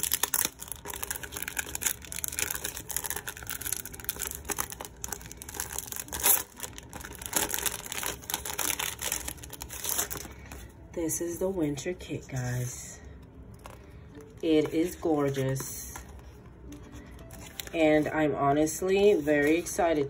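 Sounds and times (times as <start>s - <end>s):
cellophane sleeve crinkling: 0.0s - 10.8s, 15.3s - 17.8s.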